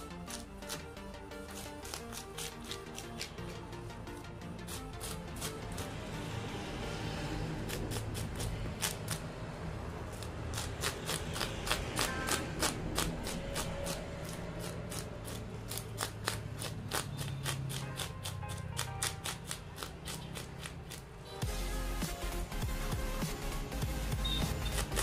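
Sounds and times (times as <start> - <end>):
knife scraping fish scales: 0.0 - 6.0, 7.6 - 9.3, 10.1 - 21.1, 24.6 - 25.0.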